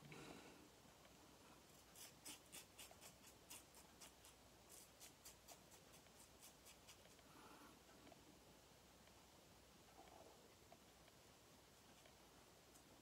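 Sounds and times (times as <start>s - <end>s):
razor scraping stubble: 1.8s - 7.2s.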